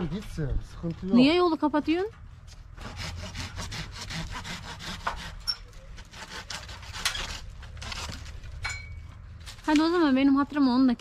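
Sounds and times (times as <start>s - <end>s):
hand saw cutting branch: 2.8s - 8.5s.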